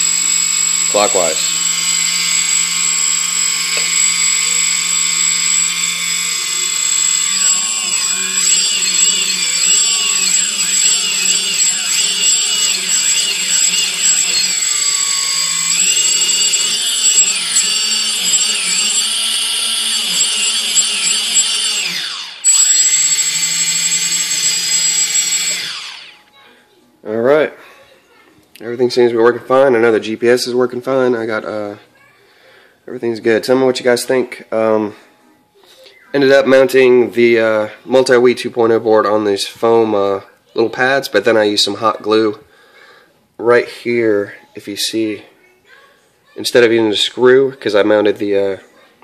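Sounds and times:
high electric motor whine: 0.0 - 26.4.

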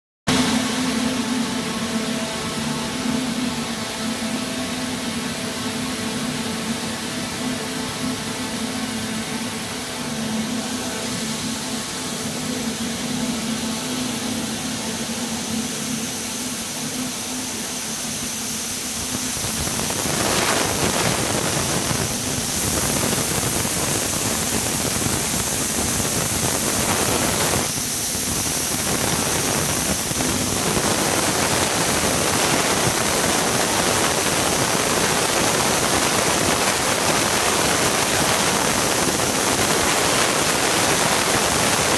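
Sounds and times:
low machine hum: 0.3 - 41.9
air-jet hiss: 7.6 - 41.9.

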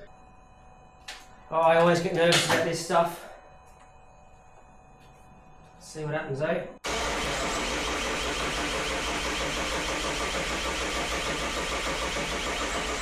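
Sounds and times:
engine cranking on starter motor: 6.8 - 13.0.

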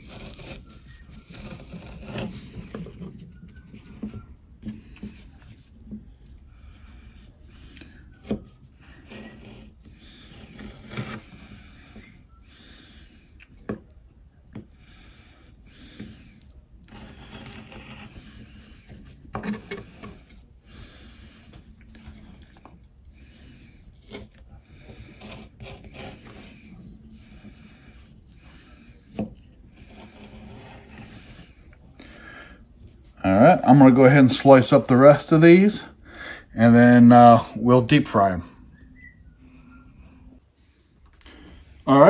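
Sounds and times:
knife cutting on wooden board: 0.0 - 5.5, 8.1 - 12.2, 16.0 - 20.4, 24.0 - 27.7.

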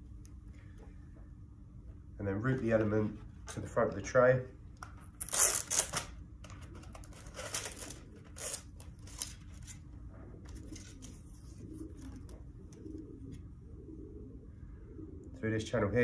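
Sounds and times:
scratchy plastic rustles: 5.2 - 12.3.

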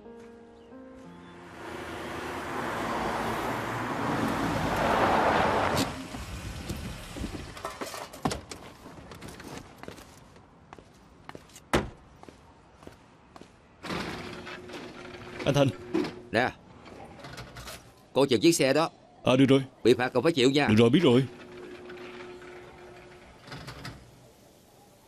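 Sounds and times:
car pulling up: 1.3 - 8.1.

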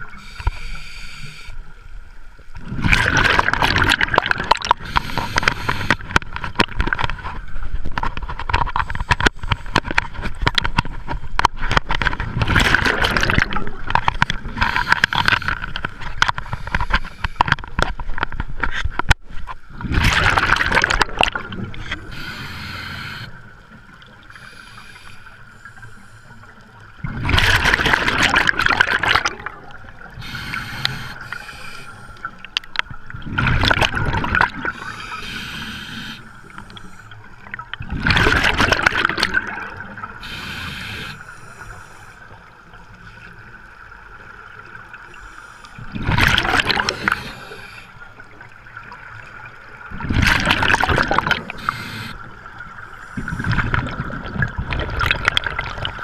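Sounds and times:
regulator inhale hiss: 0.1 - 1.7, 4.8 - 6.0, 14.6 - 15.7, 16.5 - 17.4, 22.0 - 23.5, 24.3 - 26.6, 30.2 - 32.5, 34.6 - 37.2, 40.2 - 42.4, 45.1 - 45.9, 46.8 - 48.1, 51.4 - 52.3, 52.9 - 53.8
bubbling exhaled air underwater: 2.6 - 7.0, 12.3 - 16.4, 19.8 - 23.3, 27.0 - 31.8, 32.5 - 41.3, 45.8 - 47.8, 49.9 - 56.0.

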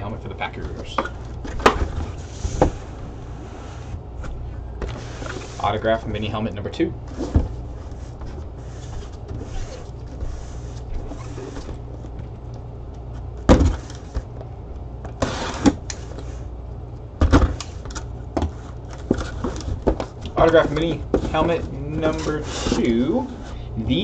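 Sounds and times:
steady low hum: 0.0 - 24.0
cardboard scraping: 0.5 - 6.0, 7.0 - 12.1, 15.1 - 16.4, 18.5 - 24.0.

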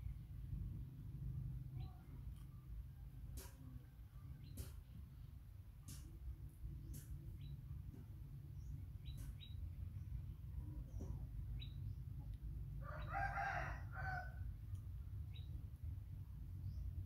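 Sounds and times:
low background rumble: 0.0 - 17.0
rooster crowing: 12.8 - 14.5.

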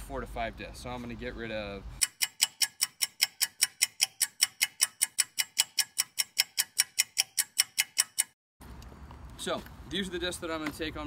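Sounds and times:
clock ticking: 2.0 - 8.4.

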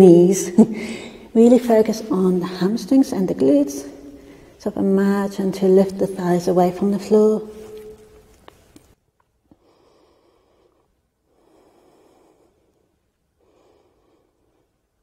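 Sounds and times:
faint breathing: 0.7 - 1.3, 4.0 - 4.6, 9.5 - 15.0.

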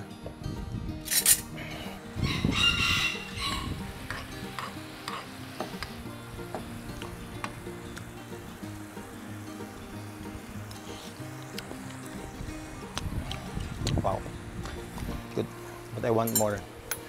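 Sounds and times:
rooster crowing: 2.2 - 3.9.

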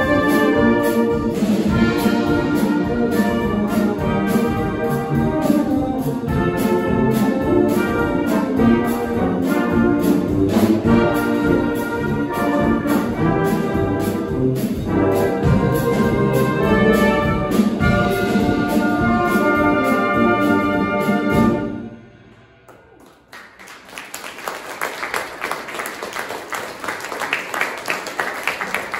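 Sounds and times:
brass band with drum kit: 0.0 - 28.9
audience applauding: 22.7 - 28.9.

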